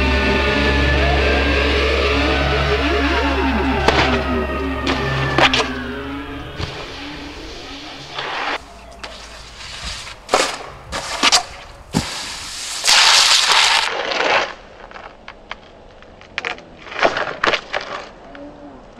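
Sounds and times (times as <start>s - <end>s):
snowboard scraping over pavement: 6.6s - 15.9s
snowboard clacks: 8.4s - 18.2s.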